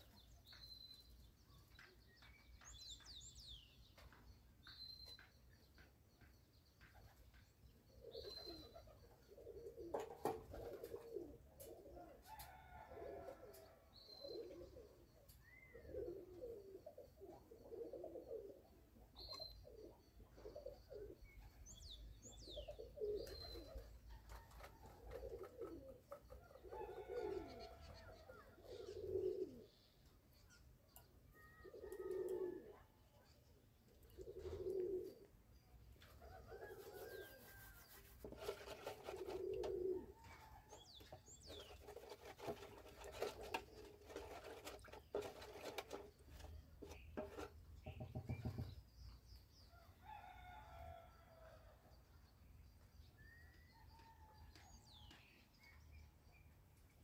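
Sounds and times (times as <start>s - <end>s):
doves cooing: 7.9s - 21.6s, 22.4s - 29.9s, 31.4s - 35.4s, 36.0s - 48.7s.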